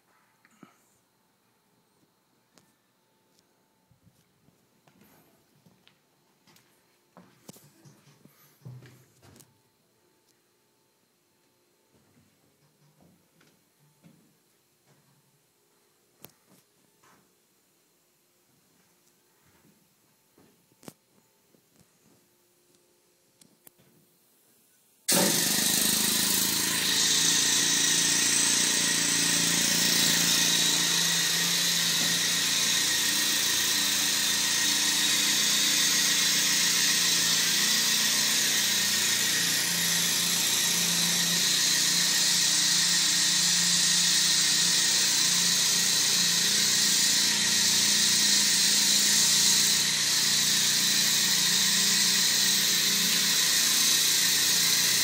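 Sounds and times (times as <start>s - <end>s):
compressed air hissing: 25.1s - 55.0s.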